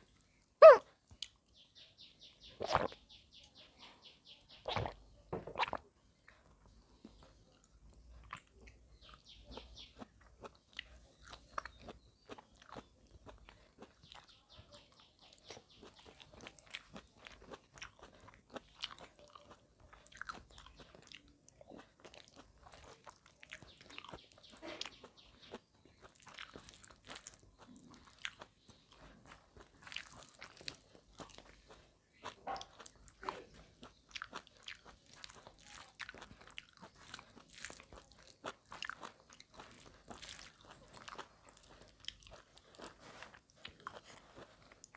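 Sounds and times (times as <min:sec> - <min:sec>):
person chewing food: 0:00.0 - 0:03.1, 0:04.5 - 0:44.9.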